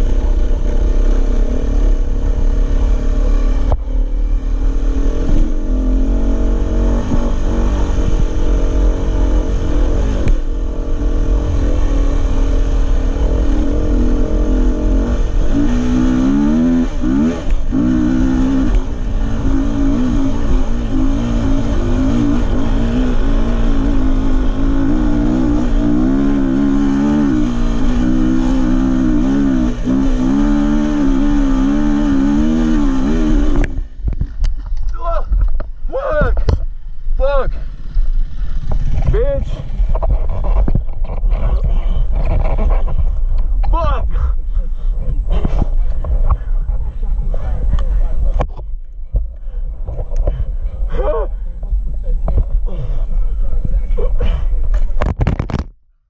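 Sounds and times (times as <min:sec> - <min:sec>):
wind rumble on microphone: 0:00.0 - 0:30.1, 0:32.1 - 0:55.8
dirt bike engine revving: 0:00.0 - 0:34.0.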